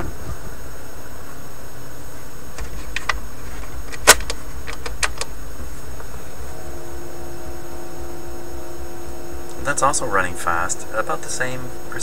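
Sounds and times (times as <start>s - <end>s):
turntable rumble: 0.0s - 12.0s
steady tone: 5.3s - 12.0s.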